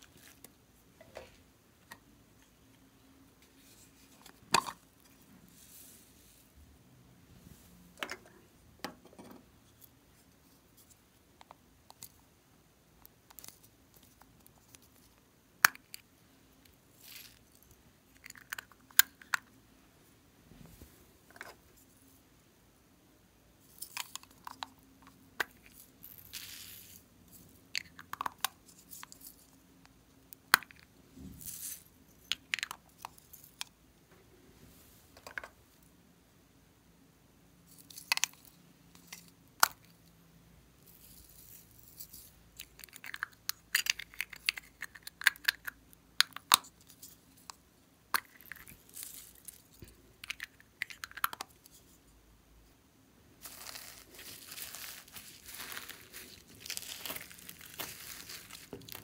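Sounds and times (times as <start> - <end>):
rustling scrapes: 53.4 - 59.0.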